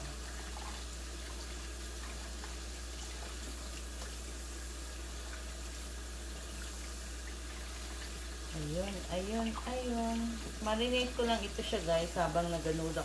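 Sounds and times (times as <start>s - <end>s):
tap running into sink: 10.3s - 10.6s.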